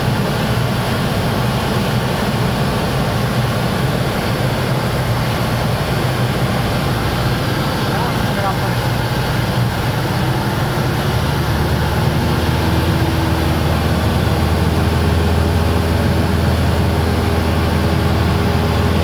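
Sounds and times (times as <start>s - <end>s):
small aircraft engine drone: 0.0s - 19.0s.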